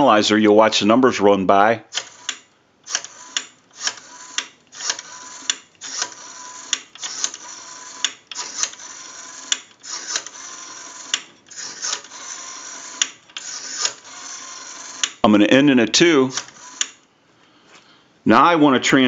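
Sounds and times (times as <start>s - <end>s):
rotary dial whirring and clicking: 1.9s - 15.3s, 16.0s - 17.0s.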